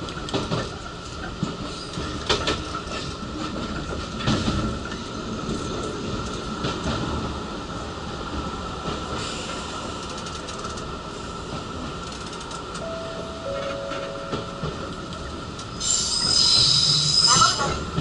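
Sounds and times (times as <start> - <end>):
train wheels rumbling: 0.0 - 18.0
two-note tone: 12.8 - 15.4
high wheel squeal: 15.8 - 17.8.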